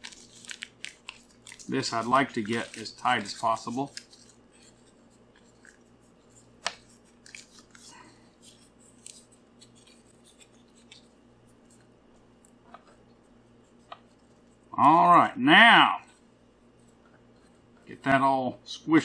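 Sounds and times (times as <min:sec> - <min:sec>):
aluminium foil crinkling: 0:00.0 - 0:12.6
faint steady hum: 0:00.0 - 0:19.0.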